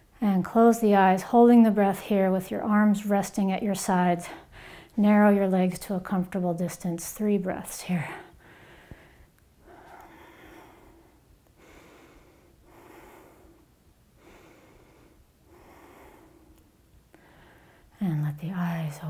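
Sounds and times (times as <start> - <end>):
woman breathing slowly: 4.2 - 5.0, 8.0 - 18.0.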